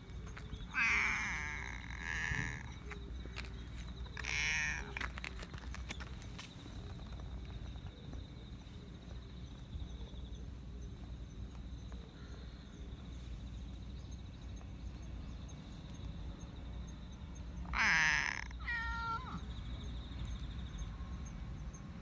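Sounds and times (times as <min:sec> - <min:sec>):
cat meowing: 0:00.7 - 0:02.8, 0:04.2 - 0:05.0, 0:17.7 - 0:19.5.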